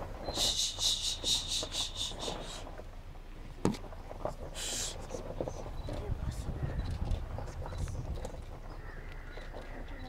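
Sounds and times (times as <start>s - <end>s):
insect chirping: 0.3s - 2.6s.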